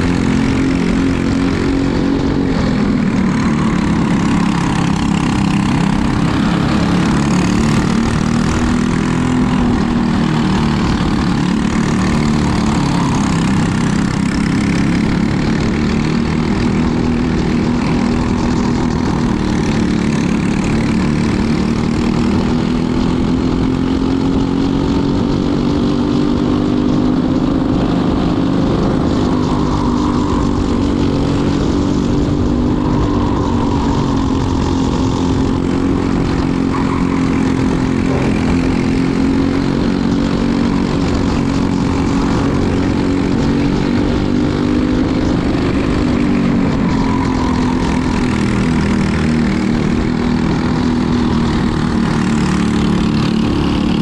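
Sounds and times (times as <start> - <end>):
racing kart engine: 0.0 - 54.0.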